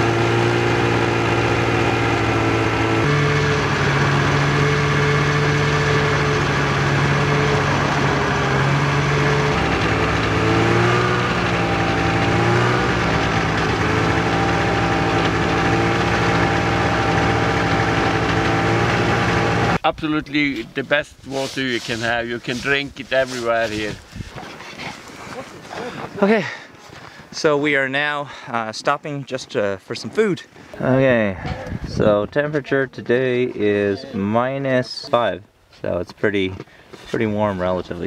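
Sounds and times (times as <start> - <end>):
snowmobile engine running: 0.0 - 19.8, 20.4 - 24.3.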